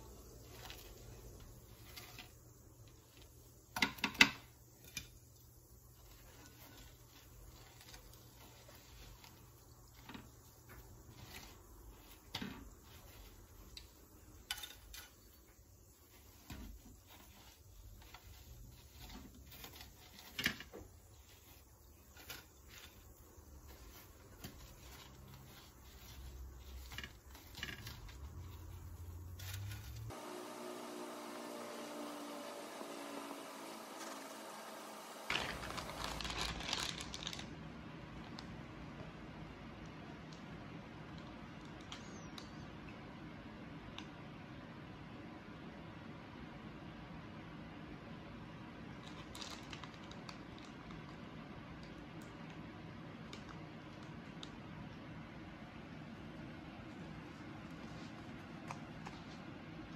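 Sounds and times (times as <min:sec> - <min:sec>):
dough frying in oil crackling: 0:20.3 - 0:37.6.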